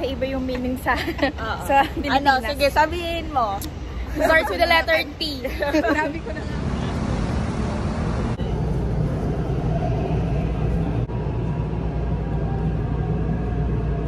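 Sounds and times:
metro train rumbling: 0.0 - 14.0
street noise: 0.0 - 14.0.

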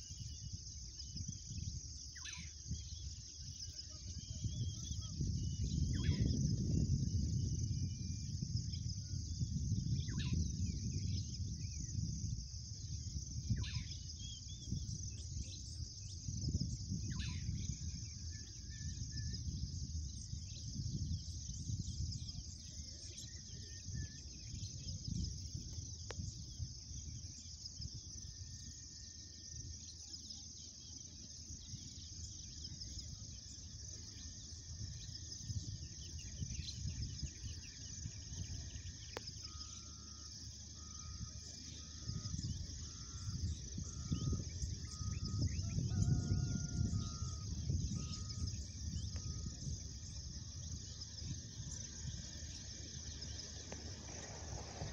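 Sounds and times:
insects trilling: 0.0 - 54.9
low uneven rumble: 45.6 - 54.9.

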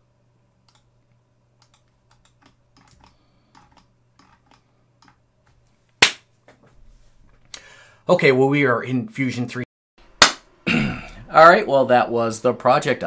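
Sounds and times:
computer keyboard typing: 1.6 - 5.2.

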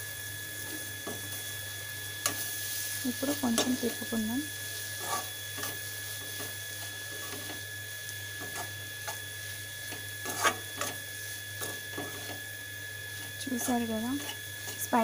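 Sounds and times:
spatula scraping metal pan: 5.0 - 5.8, 9.9 - 11.0.

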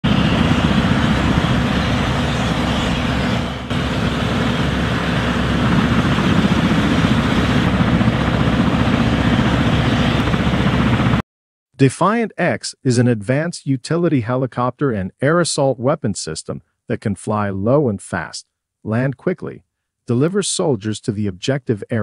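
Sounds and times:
helicopter rotors beating: 0.0 - 11.2.

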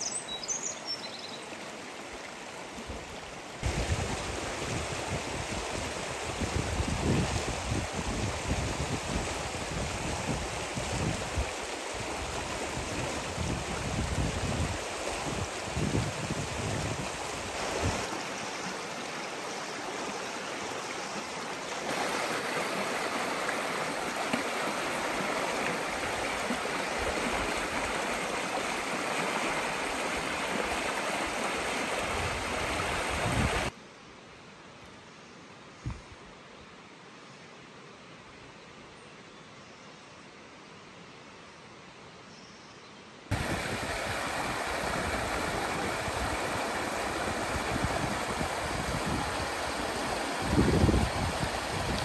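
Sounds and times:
stream rushing over stones: 0.0 - 33.7, 43.3 - 52.0.

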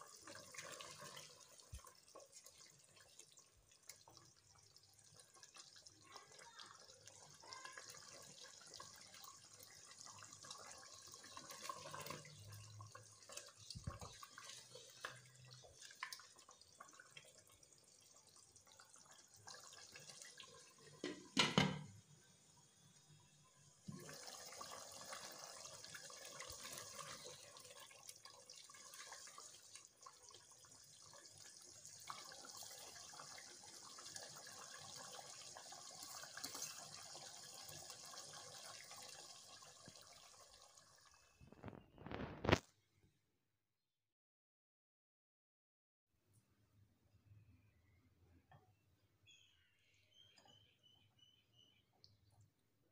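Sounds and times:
gravy bubbling in a pan: 0.0 - 42.7
glass lid clattering onto pan: 21.0 - 21.9.

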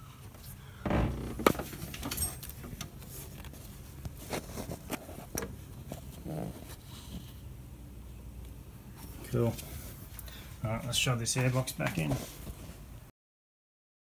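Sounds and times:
handling rustles: 0.3 - 7.3, 8.9 - 13.0.

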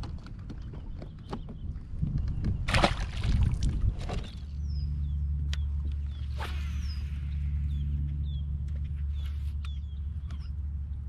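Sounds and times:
steady low hum: 0.0 - 11.0
water sloshing against hull: 0.4 - 4.6
fish splashing in water: 2.7 - 4.2
bird chirping: 4.2 - 10.6.

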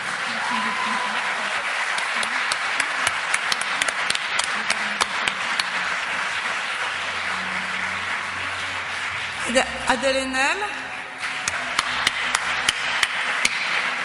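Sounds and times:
audience applauding: 0.0 - 14.0
sharp single claps: 11.2 - 14.0.

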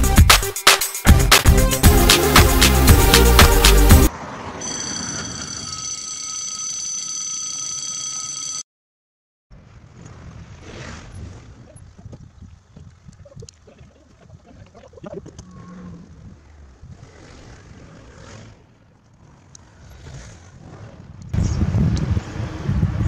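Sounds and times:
road traffic rumble: 2.2 - 5.9, 15.3 - 23.0.

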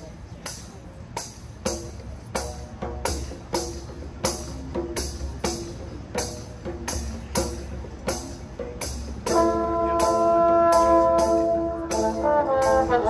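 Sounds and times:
marching band percussion strikes: 0.3 - 13.0
brass section held chord: 9.3 - 13.0.

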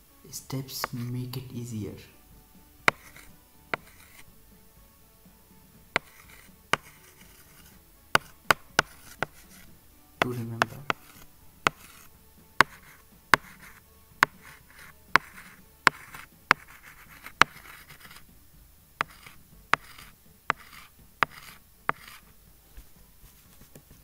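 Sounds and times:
stylus scratching on screen: 0.8 - 1.2, 2.9 - 4.3, 6.0 - 18.3, 19.0 - 22.4
stylus tapping on screen: 2.9 - 4.2, 6.0 - 18.2, 19.0 - 22.2.

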